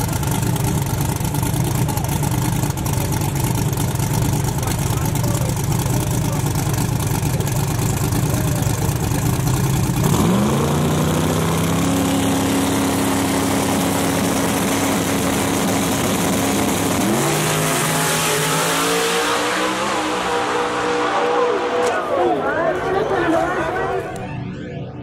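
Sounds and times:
car engine idling and revving: 0.0s - 25.0s.

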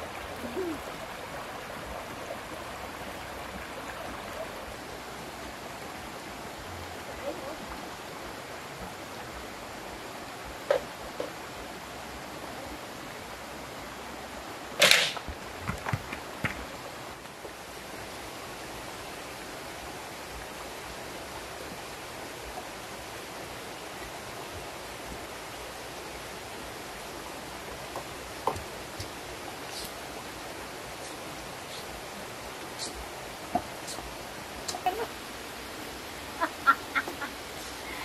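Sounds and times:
steady background hiss: 0.0s - 38.0s
bamboo poles clattering: 14.8s - 15.4s.

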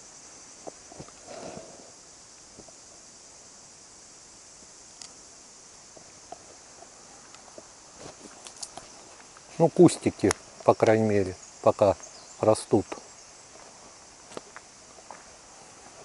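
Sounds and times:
insects chirring: 0.0s - 16.0s
faint clicks: 5.0s - 5.2s.

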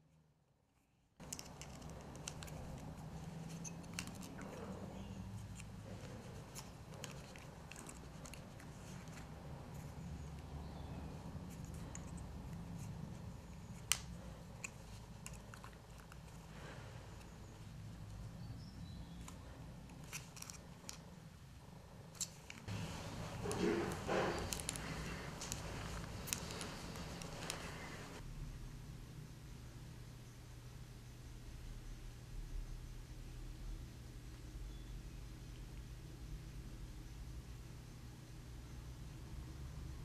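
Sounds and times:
steady low hum: 1.2s - 40.0s.

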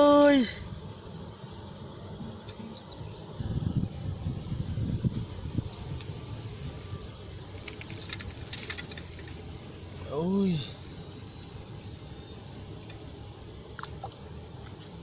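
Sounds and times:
insects chirping: 0.0s - 3.4s, 6.5s - 14.6s
low outdoor rumble: 0.0s - 15.0s.

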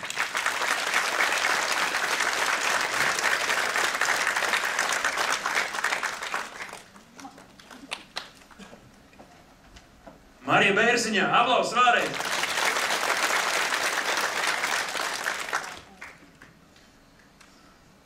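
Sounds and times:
audience applauding: 0.0s - 8.6s, 12.0s - 16.6s.

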